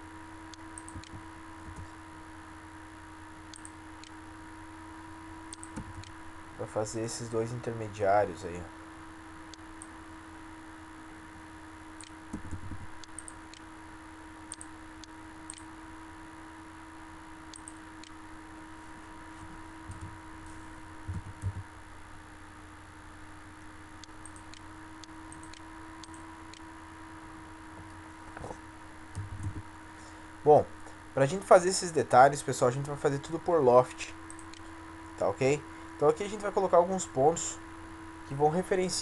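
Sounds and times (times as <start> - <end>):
electrical hum and hiss: 0.0 - 39.0
mouse and keyboard clicks: 0.8 - 1.9, 5.5 - 6.1
soft low thumps: 12.3 - 13.0, 21.0 - 21.7, 29.2 - 29.7.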